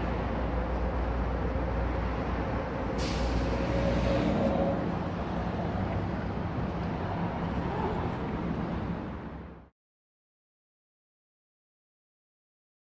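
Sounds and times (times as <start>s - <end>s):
traffic engine hum: 0.0s - 9.7s
short hiss: 3.0s - 4.2s.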